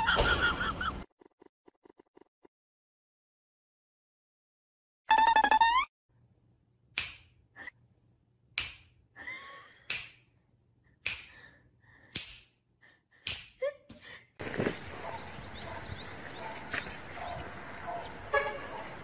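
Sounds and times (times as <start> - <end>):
fingers snapping: 7.0 - 7.4, 8.6 - 9.0, 9.8 - 10.3, 11.0 - 11.4, 12.1 - 12.6, 13.2 - 13.6.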